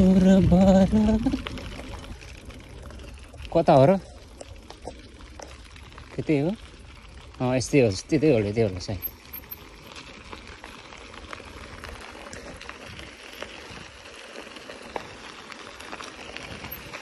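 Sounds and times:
bike tyres crunching on gravel: 0:00.0 - 0:17.0.

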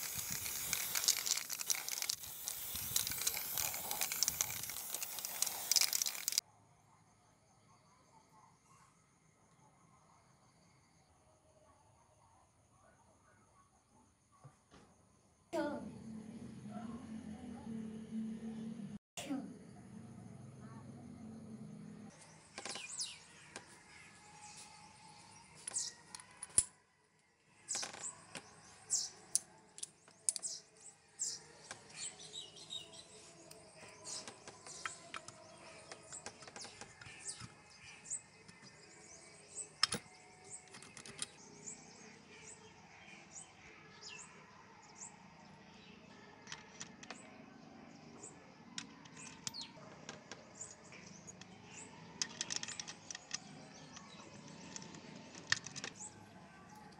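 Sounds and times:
metal gears clinking: 0:00.0 - 0:06.4.

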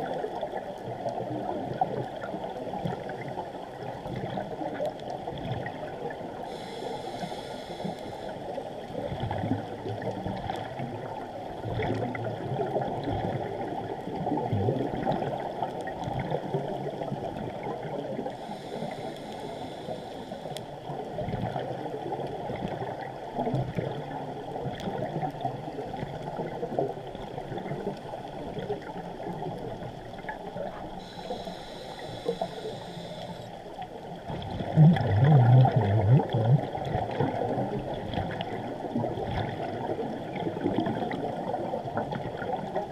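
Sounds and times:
diver regulator breathing: 0:06.5 - 0:08.8, 0:18.3 - 0:20.8, 0:31.0 - 0:33.7
bubbles gurgling: 0:09.0 - 0:19.1, 0:34.1 - 0:42.9
short hisses: 0:18.5 - 0:20.6, 0:31.0 - 0:33.6.

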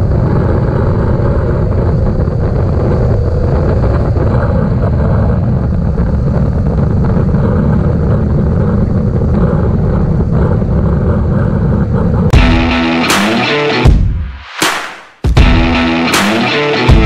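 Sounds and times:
wind rush: 0:00.0 - 0:17.0
electric rock guitar music: 0:12.3 - 0:14.3, 0:15.3 - 0:17.0.

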